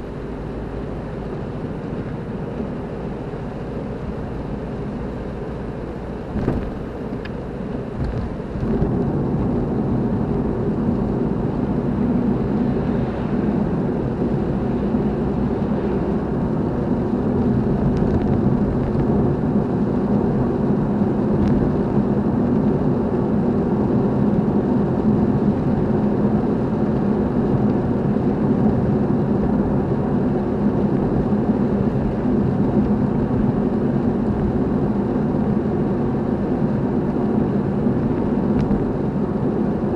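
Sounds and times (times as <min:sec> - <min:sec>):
car engine and road noise: 0:00.0 - 0:39.9.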